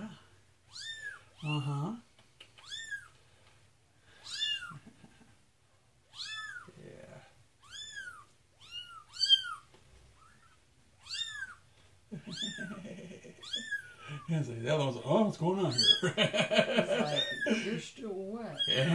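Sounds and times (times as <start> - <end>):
kitten meowing: 0.7 - 1.7, 2.6 - 3.1, 4.2 - 4.9, 6.1 - 6.7, 7.6 - 11.6, 12.3 - 12.8, 13.4 - 14.0, 17.1 - 17.5, 18.6 - 18.9.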